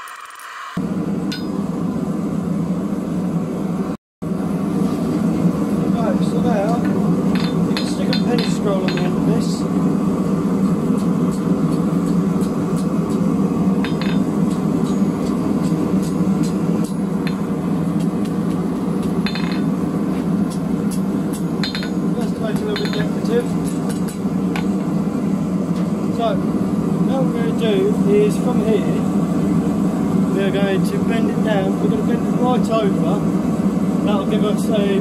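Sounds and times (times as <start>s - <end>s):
hammer striking hot metal on anvil: 1.3s - 1.6s, 6.6s - 9.6s, 10.6s - 24.9s.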